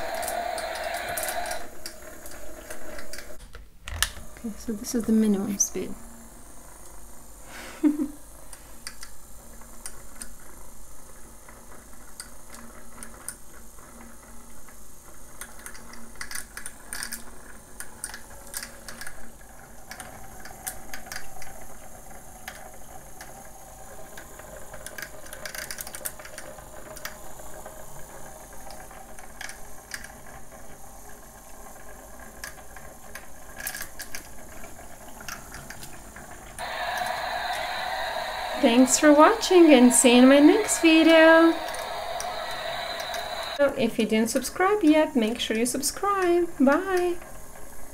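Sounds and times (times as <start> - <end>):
small electric motor running: 0.0 - 3.4
faint hum: 0.0 - 10.5, 36.6 - 47.9.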